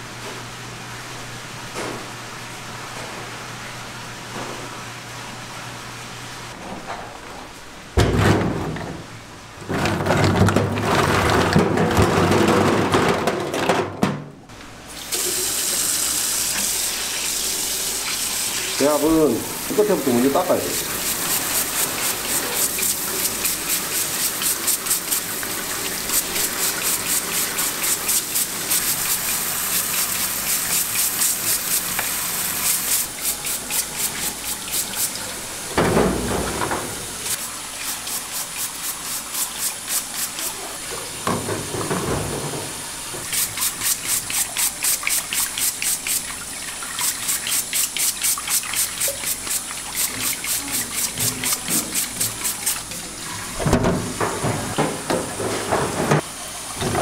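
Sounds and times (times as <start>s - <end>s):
tap water running into sink: 15.0s - 57.0s
brush scrubbing shells: 18.8s - 35.2s, 37.4s - 40.6s, 43.3s - 52.8s.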